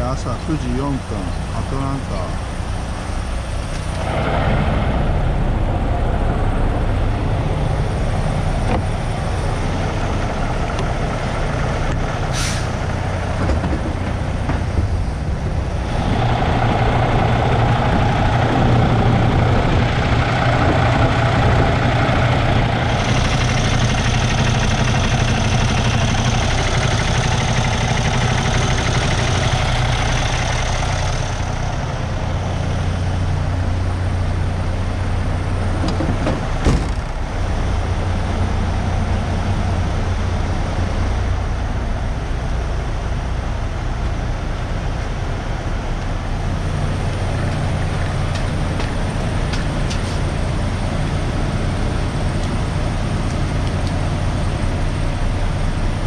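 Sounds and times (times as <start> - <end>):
diesel truck engine running: 0.0 - 56.0
road noise: 0.0 - 56.0
sharp air hiss: 12.3 - 12.8.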